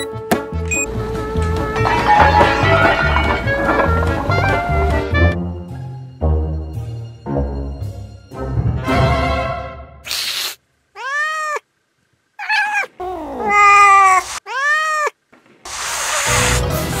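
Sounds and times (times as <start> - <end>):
short hiss: 10.0 - 10.6, 15.7 - 16.8
cat meowing: 11.0 - 11.6, 12.4 - 15.2.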